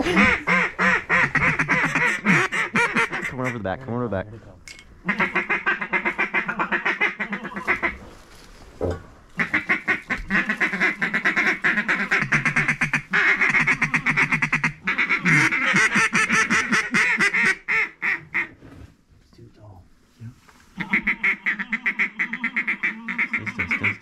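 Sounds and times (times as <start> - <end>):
duck calls quacking: 0.0 - 3.9, 5.0 - 8.0, 9.4 - 18.5, 20.8 - 24.0.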